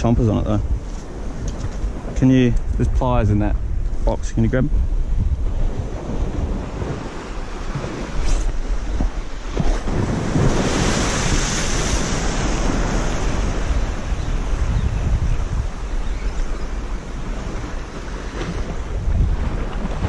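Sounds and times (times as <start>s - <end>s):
wind buffeting microphone: 0.0s - 20.0s
waves washing on rocks: 5.7s - 14.6s.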